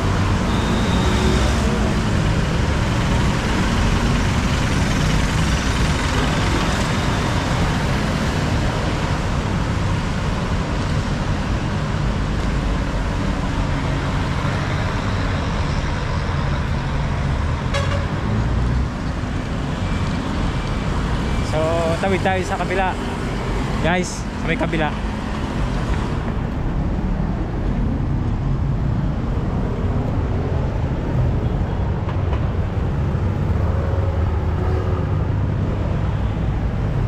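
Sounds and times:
heavy road traffic rumble: 0:00.0 - 0:37.0.

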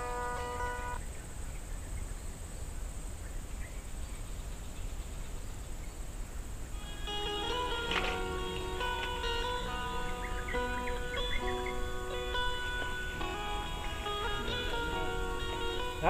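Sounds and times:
background music: 0:06.8 - 0:16.0.

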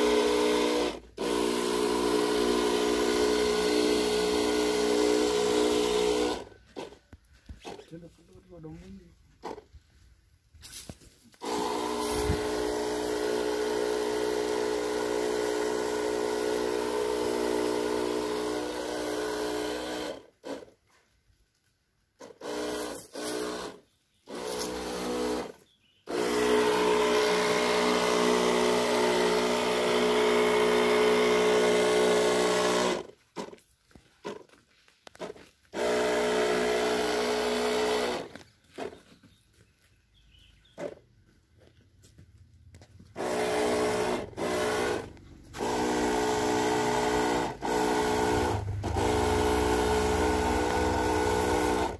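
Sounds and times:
sprayer pump motor humming: 0:00.0 - 0:07.0, 0:11.3 - 0:20.8, 0:22.2 - 0:33.6, 0:35.2 - 0:39.0, 0:43.1 - 0:51.9.

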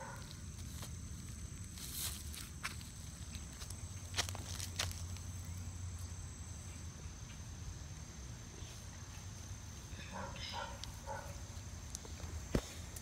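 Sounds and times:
high-pitched insect trill: 0:00.0 - 0:12.3.

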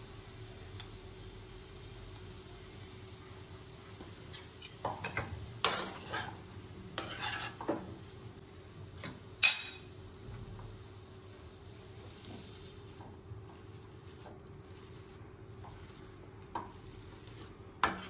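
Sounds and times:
spatula clanking on pan: 0:04.3 - 0:06.3, 0:07.0 - 0:07.9, 0:09.0 - 0:09.9, 0:17.8 - 0:18.0
spatula scraping pan: 0:04.3 - 0:07.9, 0:12.2 - 0:18.0.

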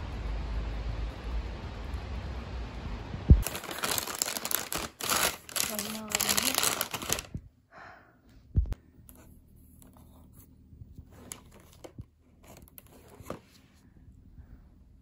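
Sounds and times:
plastic packaging rustling: 0:03.4 - 0:07.4, 0:11.0 - 0:13.6.

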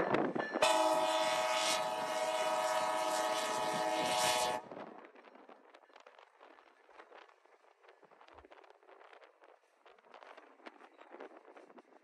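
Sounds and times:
locomotive air horn blast: 0:00.6 - 0:04.7.

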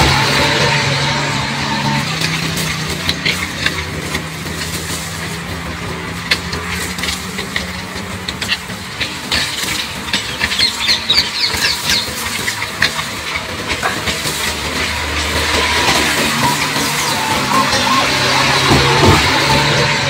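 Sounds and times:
puppies squeaking and whimpering: 0:15.4 - 0:20.0.

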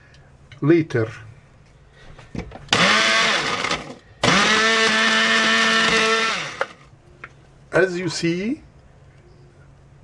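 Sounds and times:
electric spice grinder whine: 0:02.8 - 0:06.9.

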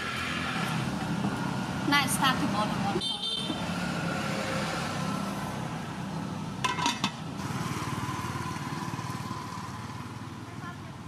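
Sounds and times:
small engine rumbling: 0:05.1 - 0:11.0.

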